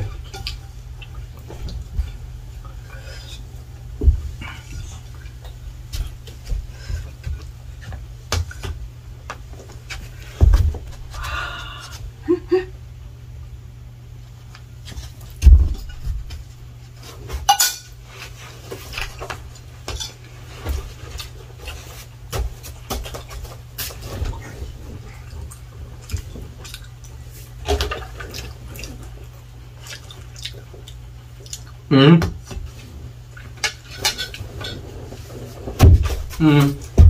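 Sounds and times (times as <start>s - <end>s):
heavy thumps: 3.9s - 4.5s, 10.3s - 11.3s, 35.7s - 37.0s
plates and cutlery clattering: 17.5s - 18.0s, 19.9s - 20.2s, 33.6s - 34.8s
person speaking: 36.4s - 37.0s.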